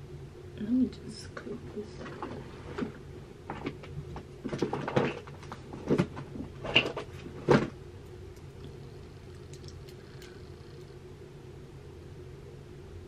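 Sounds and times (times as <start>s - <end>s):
small objects knocking and clattering: 3.5s - 7.7s.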